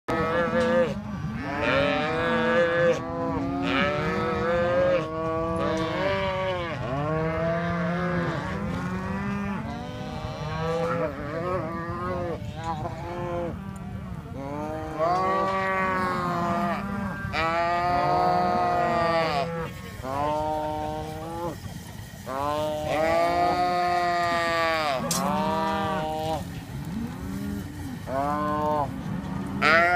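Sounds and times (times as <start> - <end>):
calves bawling: 0.2 - 29.9.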